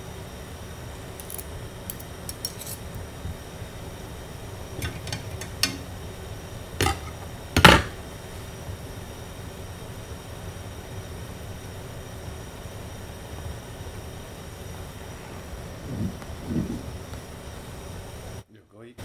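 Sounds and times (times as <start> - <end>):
knife scraping ceramic plate: 2.3 - 2.9, 6.8 - 7.2
dishes clattering: 4.8 - 6.0, 6.8 - 8.0.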